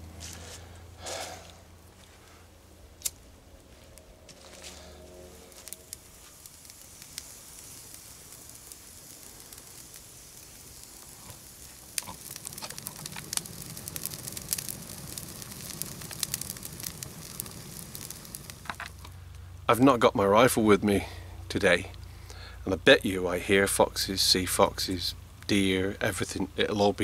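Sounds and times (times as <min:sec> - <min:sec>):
kindling crackling: 0:00.0 - 0:27.0
flame hissing: 0:04.2 - 0:25.8.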